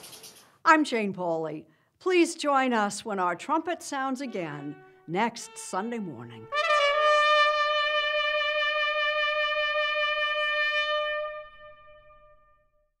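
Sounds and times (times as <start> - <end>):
trumpet holding long note: 4.1 - 12.9.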